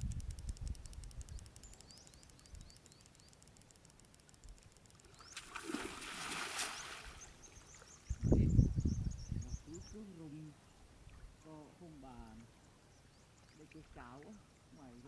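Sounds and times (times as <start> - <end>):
faint high chirping: 1.1 - 3.7, 6.6 - 10.1
splash and swish of water: 5.3 - 7.9.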